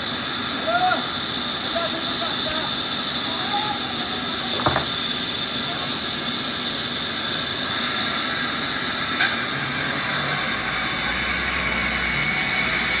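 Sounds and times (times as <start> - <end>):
band saw cutting log: 4.2 - 6.6.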